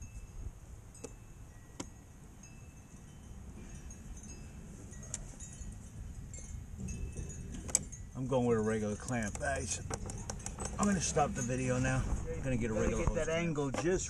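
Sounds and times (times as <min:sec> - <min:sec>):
metallic clicks and clinks: 0:04.2 - 0:11.8
metal taps with ringing tone: 0:06.4 - 0:11.8.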